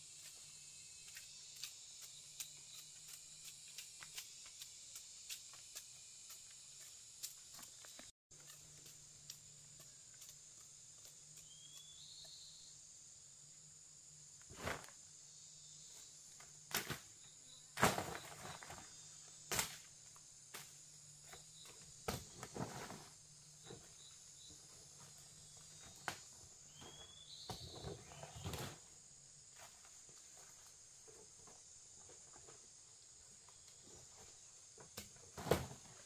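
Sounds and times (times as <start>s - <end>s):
high-pitched insect drone: 0.0s - 14.4s.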